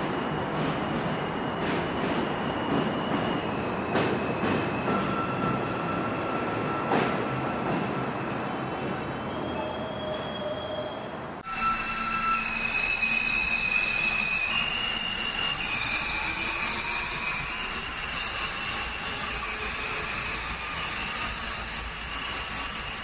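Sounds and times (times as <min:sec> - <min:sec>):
subway train wheels on rails: 0:00.0 - 0:23.0
train high whine: 0:09.6 - 0:23.0.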